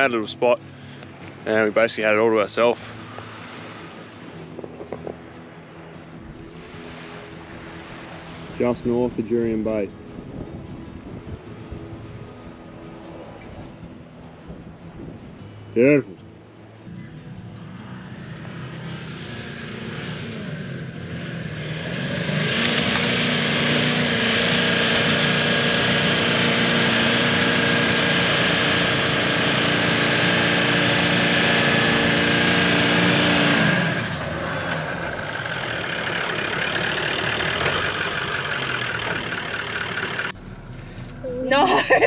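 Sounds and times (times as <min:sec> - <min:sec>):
engine revving in low gear: 0:17.5 - 0:41.8.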